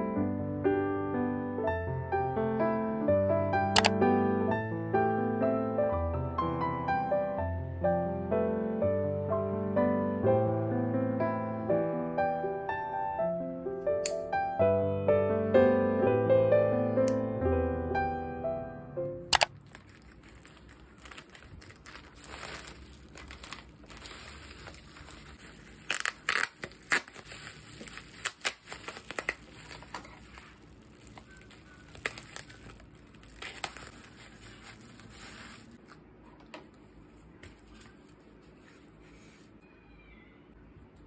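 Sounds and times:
plastic crinkling: 0:19.4 - 0:36.0
scissors snipping plastic: 0:25.6 - 0:30.3, 0:31.0 - 0:34.0.

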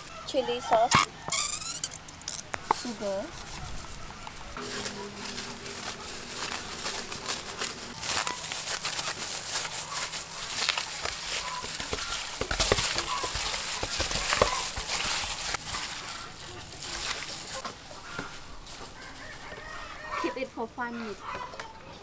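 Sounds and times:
plastic glove crinkling: 0:01.3 - 0:20.4
wet squelching of squid in bowl: 0:05.4 - 0:18.4.

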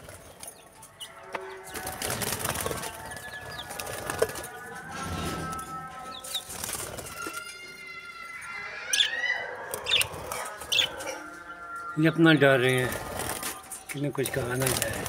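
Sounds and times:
wings flapping and rustling: 0:00.0 - 0:01.0, 0:01.6 - 0:07.8, 0:12.6 - 0:15.0
chicks peeping: 0:00.0 - 0:15.0.

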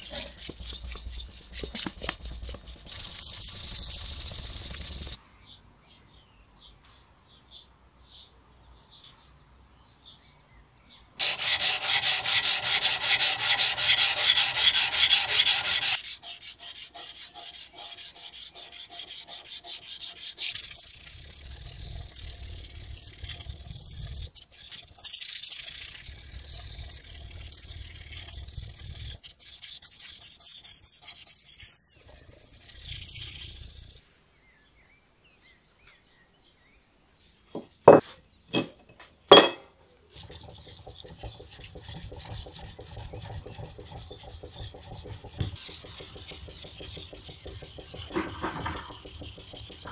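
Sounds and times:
sanding steel axe head: 0:00.0 - 0:04.2, 0:11.2 - 0:23.7, 0:40.2 - 0:49.9.

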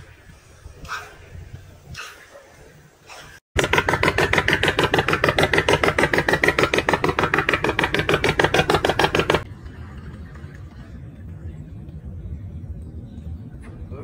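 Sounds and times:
boat engine knocking: 0:03.6 - 0:10.4.

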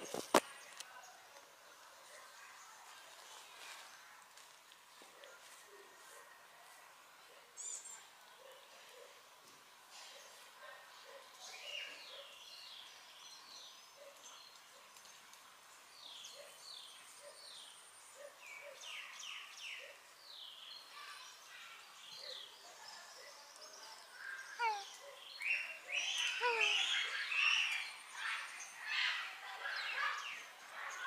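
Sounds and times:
small birds chirping: 0:07.2 - 0:31.0.

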